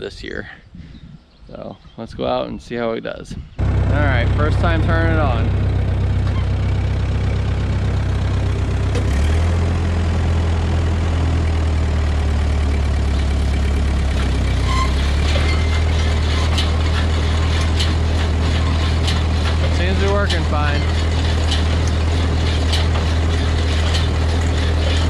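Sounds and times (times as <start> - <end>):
tractor engine running: 3.6 - 25.0
baler clicking and rattling: 12.7 - 25.0.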